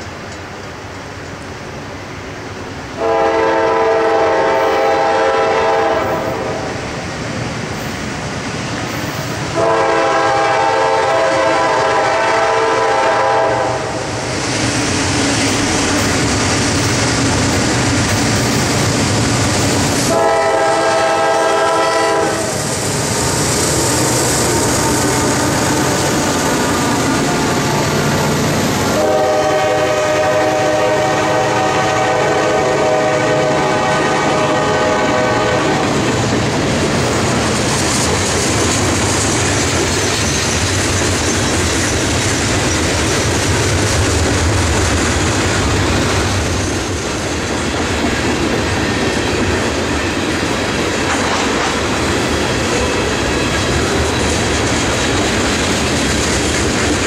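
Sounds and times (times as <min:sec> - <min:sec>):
train wheels on rails: 0:00.0 - 0:57.0
train air horn blasts: 0:03.0 - 0:06.8, 0:09.5 - 0:14.1, 0:20.0 - 0:22.8, 0:24.6 - 0:36.0
locomotive engines: 0:13.9 - 0:29.9.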